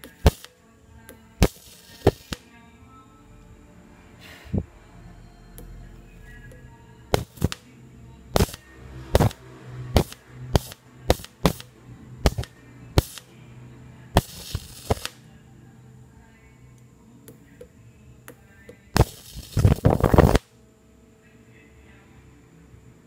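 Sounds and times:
electric arc hissing: 0:00.0 - 0:00.6, 0:01.4 - 0:02.5, 0:07.1 - 0:07.6, 0:08.3 - 0:13.3, 0:14.1 - 0:15.2, 0:18.9 - 0:20.6
high-voltage sparks snapping: 0:00.0 - 0:00.6, 0:01.4 - 0:02.5, 0:07.1 - 0:07.7, 0:08.3 - 0:13.3, 0:14.2 - 0:15.2, 0:18.9 - 0:20.5.

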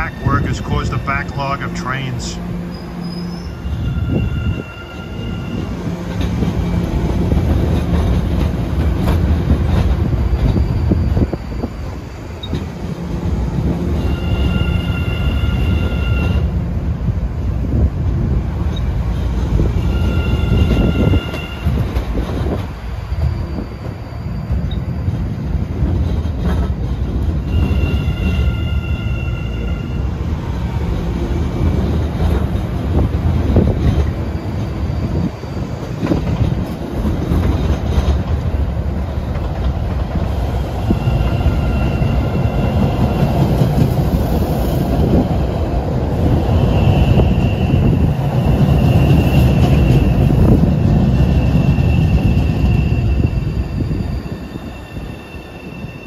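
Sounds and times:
subway train wheels rumbling: 0:00.0 - 0:56.0
high-pitched wheel squeal: 0:02.7 - 0:05.7, 0:14.0 - 0:16.4, 0:19.8 - 0:21.8, 0:51.2 - 0:56.0.

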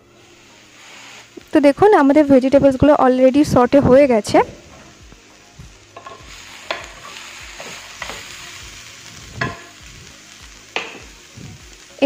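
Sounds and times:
vegetables sizzling in wok: 0:00.0 - 0:12.0
spatula scraping pan: 0:06.0 - 0:08.5.

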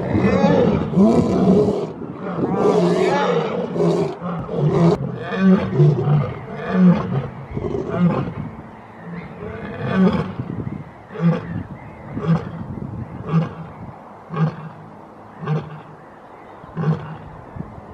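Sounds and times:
lioness roaring: 0:00.0 - 0:08.4.

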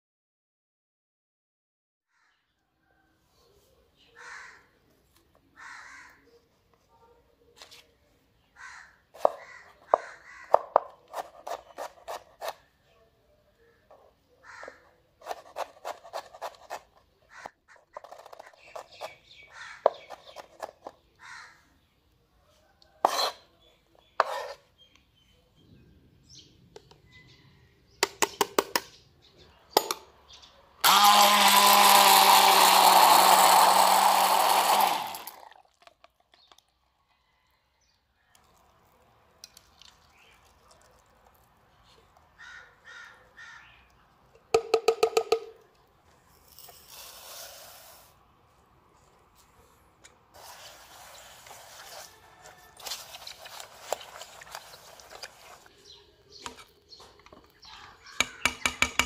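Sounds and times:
immersion blender running: 0:30.8 - 0:35.6.

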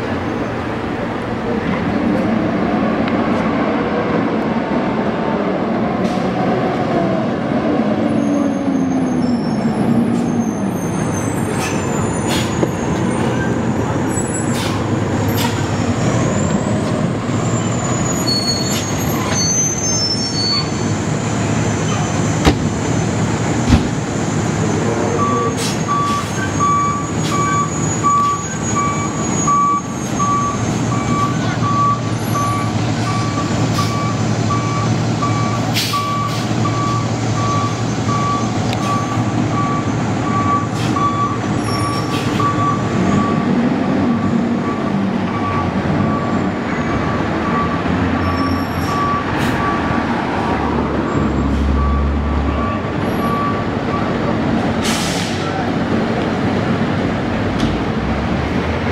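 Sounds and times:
diesel fire engine running: 0:00.0 - 0:58.9
reversing alarm beeping: 0:25.1 - 0:46.4, 0:47.0 - 0:50.0, 0:51.7 - 0:54.2.

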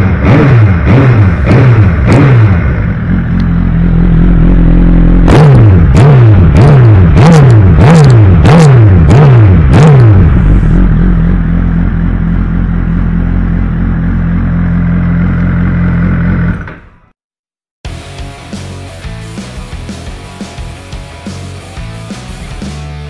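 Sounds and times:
motorcycle engine idling: 0:00.0 - 0:08.4, 0:09.0 - 0:16.6
motorcycle engine revving: 0:00.0 - 0:16.8.

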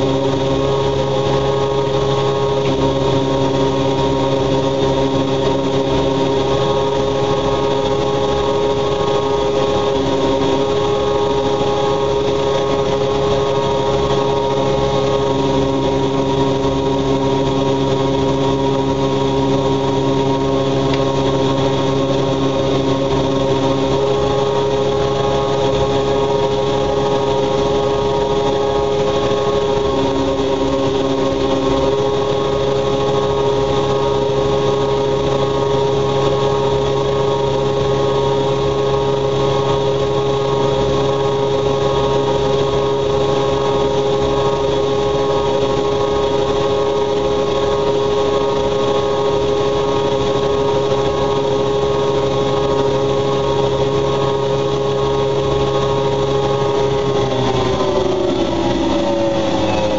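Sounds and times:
washing machines humming: 0:00.0 - 0:59.9.

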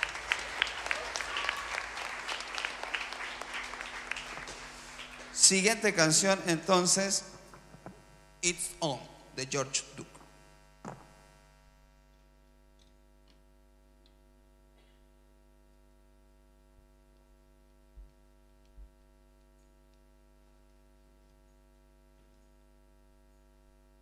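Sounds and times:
electrical mains hum: 0:00.0 - 0:24.0
faint ticks and clicks: 0:17.1 - 0:23.6.

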